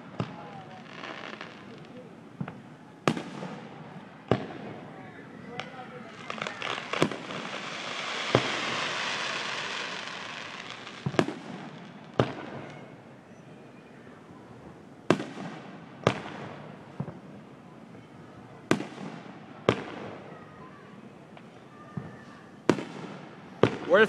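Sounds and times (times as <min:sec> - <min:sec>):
firework bangs: 0:00.0 - 0:13.0, 0:14.6 - 0:17.4, 0:18.6 - 0:20.4, 0:21.4 - 0:24.0
crackling hiss: 0:00.0 - 0:13.2.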